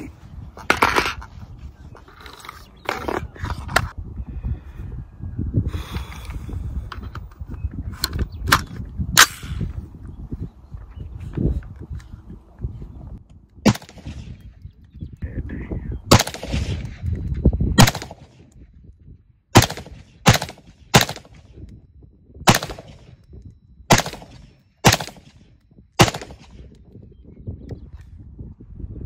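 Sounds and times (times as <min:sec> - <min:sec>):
rifle shots echoing: 0:13.6 - 0:14.4, 0:16.1 - 0:17.0, 0:17.8 - 0:18.5, 0:19.5 - 0:21.6, 0:22.5 - 0:23.2, 0:23.9 - 0:26.7.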